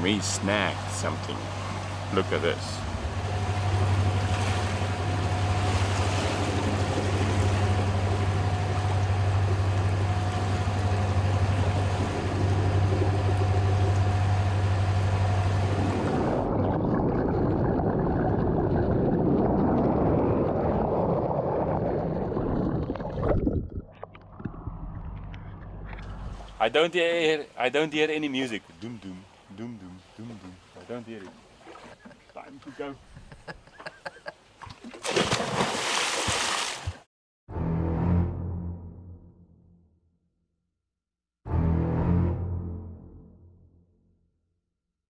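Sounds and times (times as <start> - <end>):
boat engines droning: 0.0 - 16.5, 25.2 - 34.3
water splashing along hull: 0.0 - 26.7, 28.3 - 37.1
wind on microphone: 15.4 - 23.9.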